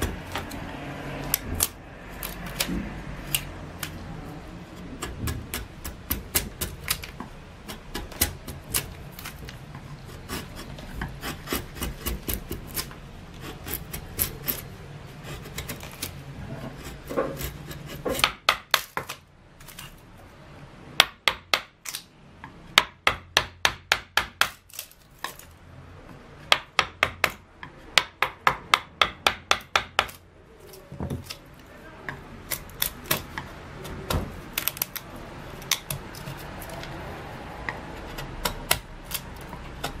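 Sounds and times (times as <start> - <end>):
sharp carving taps: 0.0 - 4.0, 4.6 - 19.8, 21.0 - 37.0, 37.6 - 40.0
knife carving wood: 0.0 - 20.3, 21.0 - 40.0.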